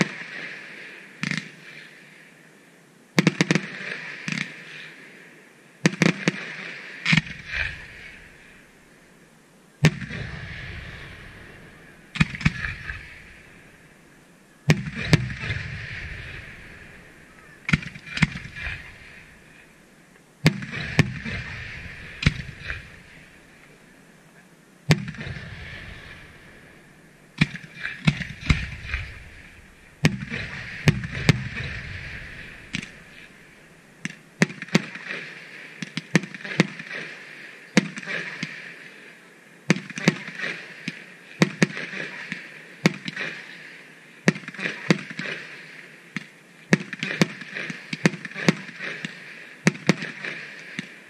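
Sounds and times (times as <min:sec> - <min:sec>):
crackle and rumble: 0:03.1 - 0:37.2
firework shells booming: 0:09.8 - 0:19.7, 0:20.4 - 0:23.7, 0:24.9 - 0:34.9.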